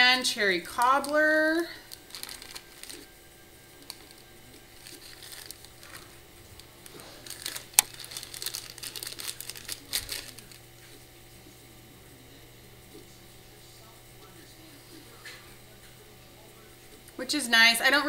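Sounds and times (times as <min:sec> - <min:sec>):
plastic wrapping crinkling: 0:00.6 - 0:03.2, 0:03.8 - 0:10.7.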